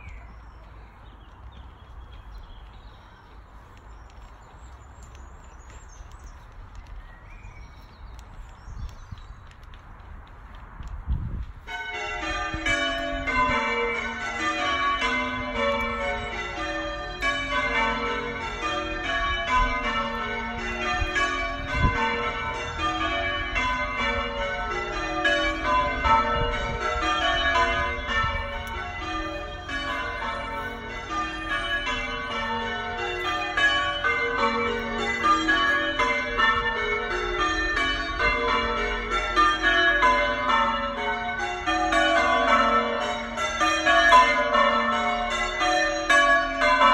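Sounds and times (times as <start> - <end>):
church bells ringing: 0.0 - 1.1, 11.6 - 46.9.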